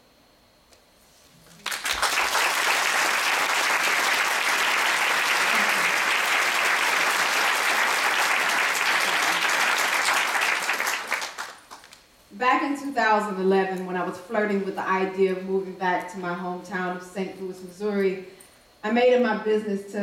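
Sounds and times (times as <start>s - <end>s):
audience applauding: 1.6s - 12.0s.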